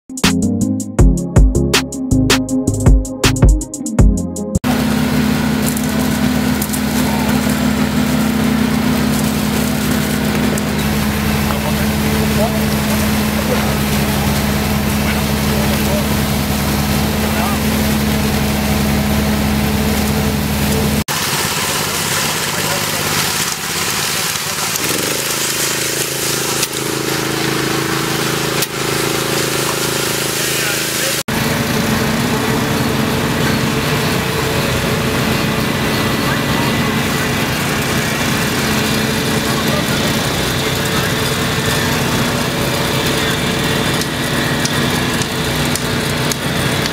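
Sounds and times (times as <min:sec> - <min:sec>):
pump engine humming: 0:04.6 - 0:46.9.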